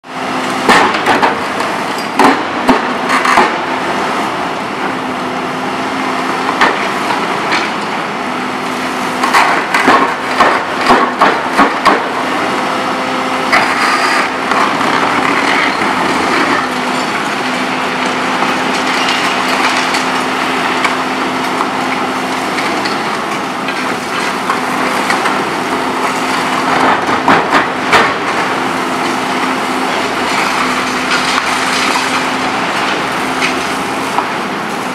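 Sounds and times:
excavator engine and hydraulics humming: 0:00.0 - 0:34.9
concrete cracking and snapping: 0:00.6 - 0:03.7, 0:09.2 - 0:12.2, 0:13.5 - 0:25.4, 0:26.0 - 0:34.4.

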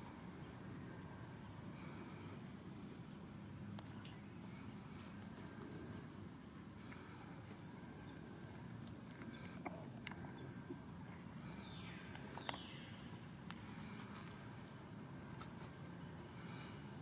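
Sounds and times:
faint outdoor rumble: 0:00.0 - 0:17.0.

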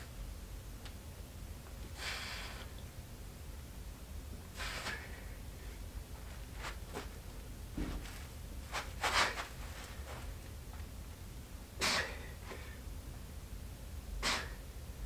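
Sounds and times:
low room hum: 0:00.0 - 0:15.0
man breathing hard: 0:01.9 - 0:02.8, 0:04.5 - 0:05.8, 0:11.8 - 0:12.9, 0:14.2 - 0:14.6.

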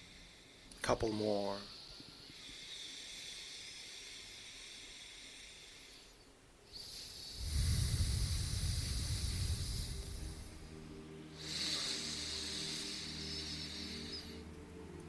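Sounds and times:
breathing through nostril: 0:01.7 - 0:15.0
low rumble: 0:07.3 - 0:11.5.

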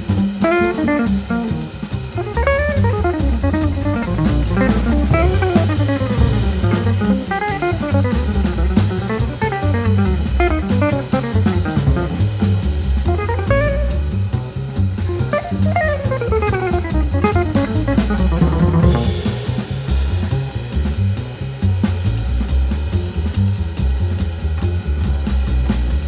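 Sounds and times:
bass and drums beat: 0:00.0 - 0:26.0
quick guitar runs: 0:00.4 - 0:19.8.

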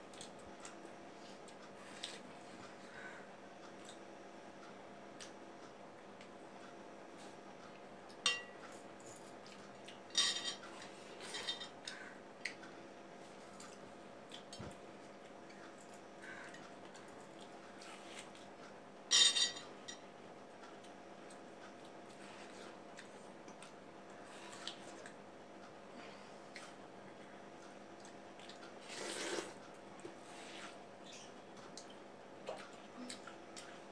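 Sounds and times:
faint hum: 0:00.0 - 0:33.9
plates clinking: 0:19.1 - 0:20.0.

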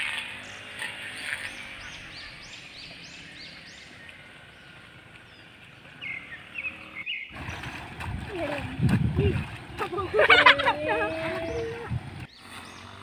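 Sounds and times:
bird chirping: 0:00.3 - 0:07.9.

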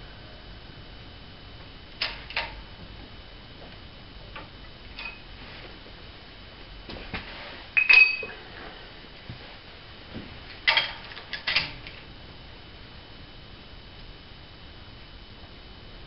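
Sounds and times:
metal tools clinking: 0:07.8 - 0:08.4.

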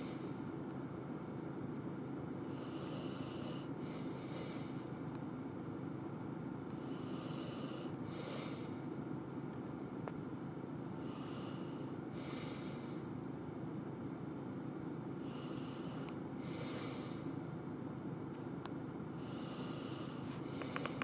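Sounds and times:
steady low hum: 0:00.0 - 0:21.0
person breathing through nose: 0:06.8 - 0:08.8, 0:11.0 - 0:13.0, 0:15.2 - 0:17.3, 0:19.2 - 0:21.0.

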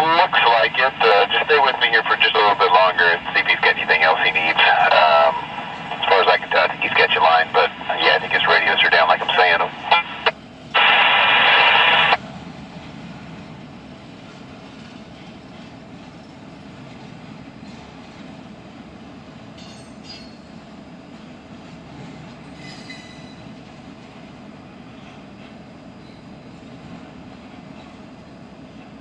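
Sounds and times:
radio scanner static: 0:00.0 - 0:12.2.

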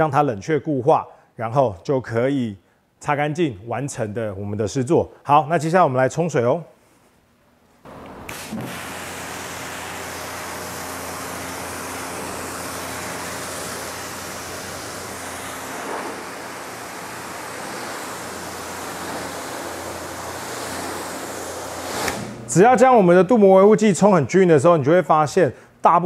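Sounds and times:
pressure washer spraying water: 0:07.9 - 0:22.6.

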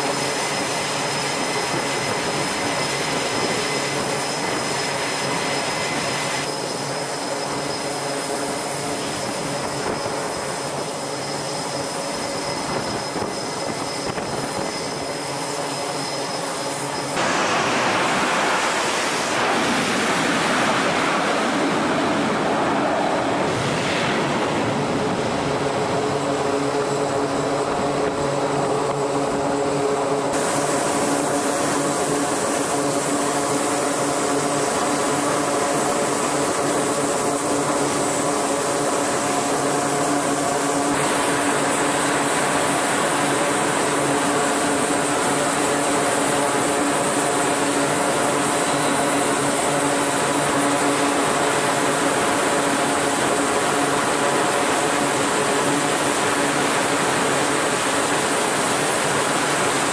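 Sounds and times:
aircraft engines droning: 0:00.0 - 0:59.9
engine hiss: 0:16.8 - 0:25.4.

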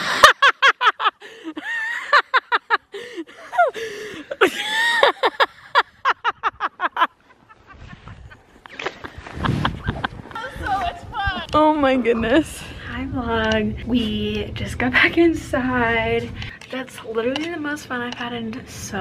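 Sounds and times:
women laughing: 0:00.0 - 0:11.4.

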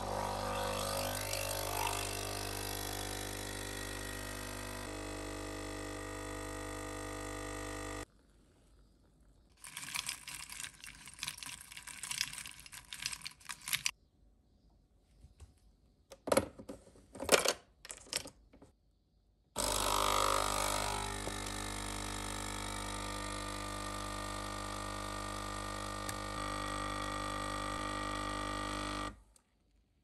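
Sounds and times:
espresso machine pump humming: 0:00.0 - 0:08.1, 0:19.6 - 0:29.2.

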